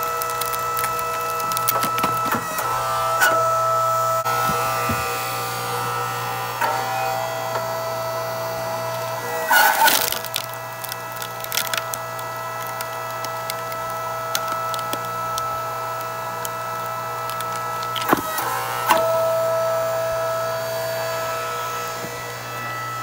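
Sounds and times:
wood cracking and splintering: 0:00.0 - 0:03.5, 0:08.7 - 0:19.1
log splitter motor hum: 0:00.0 - 0:23.0.

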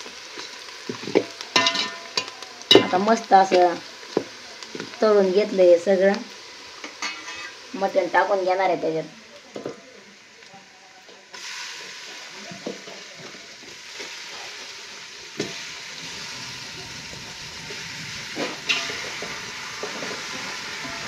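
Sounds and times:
meat sizzling in hot oil: 0:00.0 - 0:21.0.

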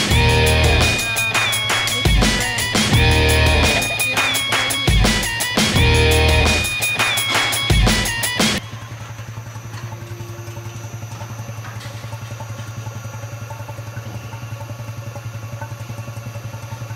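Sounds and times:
background music: 0:00.0 - 0:08.6
machinery humming with pulse: 0:00.0 - 0:16.9.

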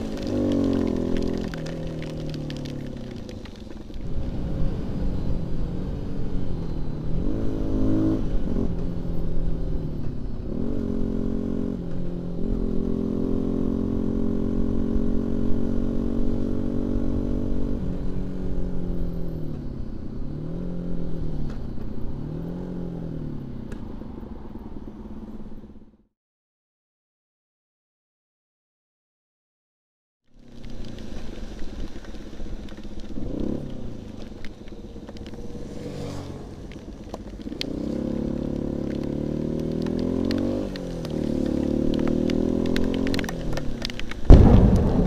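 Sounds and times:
motorcycle engine revving: 0:00.0 - 0:03.3, 0:04.0 - 0:19.4, 0:33.1 - 0:45.0.

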